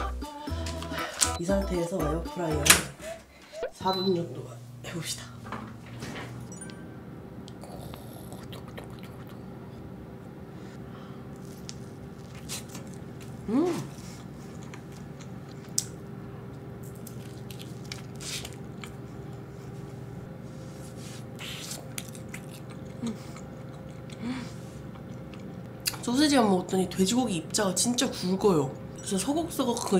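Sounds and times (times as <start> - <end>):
person humming: 0.0 - 3.7, 7.5 - 9.4, 13.4 - 14.2, 23.0 - 23.4
air fryer hum: 1.6 - 29.9
chewing with crunches: 7.5 - 9.5, 11.3 - 19.8, 21.2 - 26.0.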